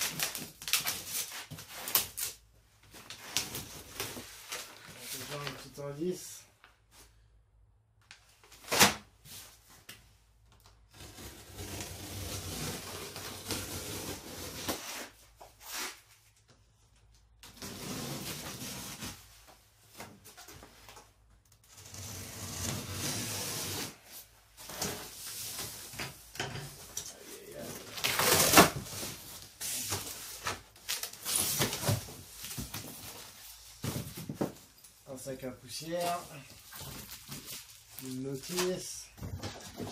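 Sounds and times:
cardboard and plastic rustling: 0:24.6 - 0:39.9.

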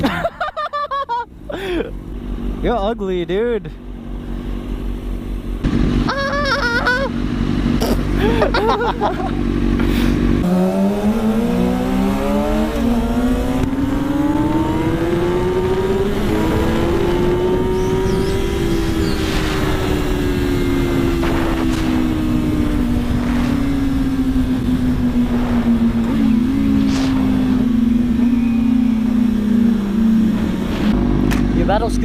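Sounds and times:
motorcycle engine accelerating: 0:00.0 - 0:32.0
wind on microphone: 0:14.6 - 0:29.0.

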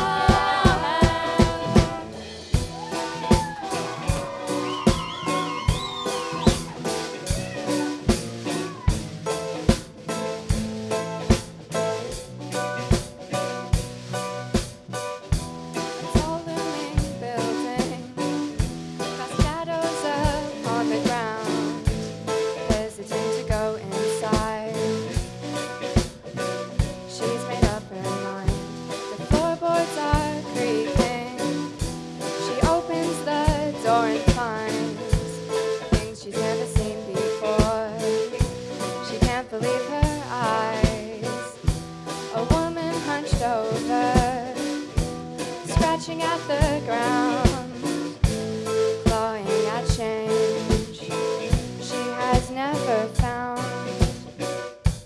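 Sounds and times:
girl singing into microphone: 0:00.0 - 0:02.2, 0:16.0 - 0:18.4, 0:19.2 - 0:25.2, 0:27.0 - 0:31.7, 0:32.4 - 0:38.3, 0:39.0 - 0:41.6, 0:42.3 - 0:44.8, 0:45.6 - 0:48.2, 0:49.0 - 0:54.1
bass guitar: 0:00.0 - 0:55.0
drum kit beat: 0:00.0 - 0:55.0
electric guitar: 0:00.0 - 0:55.0.

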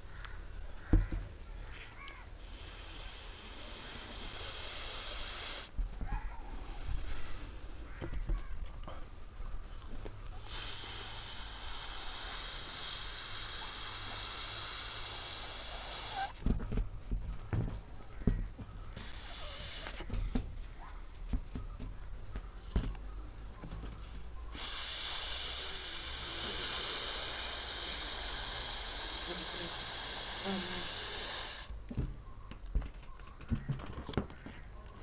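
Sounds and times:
gas hissing through balloon: 0:02.4 - 0:05.7, 0:10.4 - 0:16.4, 0:19.0 - 0:20.2, 0:24.5 - 0:31.8
short breaths: 0:02.4 - 0:05.7, 0:09.9 - 0:16.4, 0:19.0 - 0:20.5, 0:24.0 - 0:31.8.

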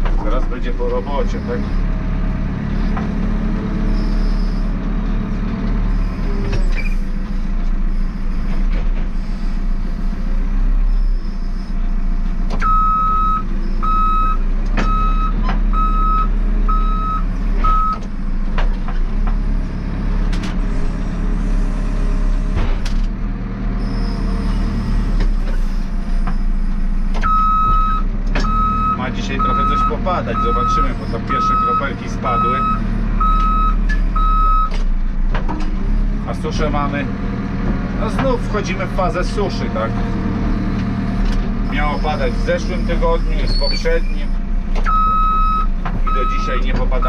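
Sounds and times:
diesel engine running: 0:00.0 - 0:47.0
reversing alarm beeps: 0:12.6 - 0:18.0, 0:27.2 - 0:34.7, 0:44.9 - 0:46.6.

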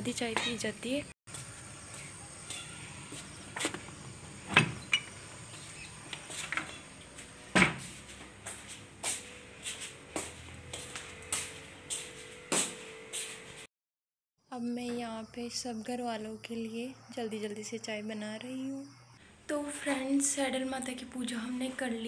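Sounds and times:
footsteps on a hard floor: 0:07.2 - 0:13.7.

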